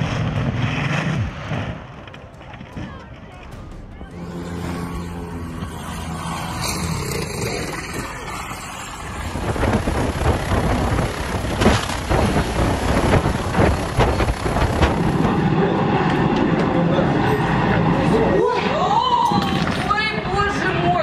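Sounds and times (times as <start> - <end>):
outdoor noise: 0.0 - 21.0
helicopter rotor and engine: 2.0 - 18.7.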